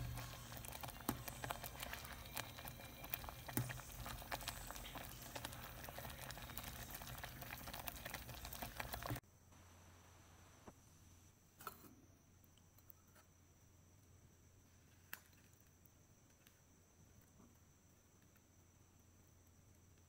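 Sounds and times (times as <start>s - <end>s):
pudding bubbles popping: 0.0s - 9.2s.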